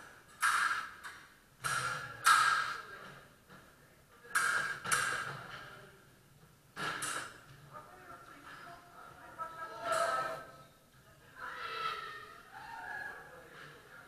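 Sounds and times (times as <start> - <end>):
fencing sabres striking: 0.4 - 2.8, 4.4 - 5.2.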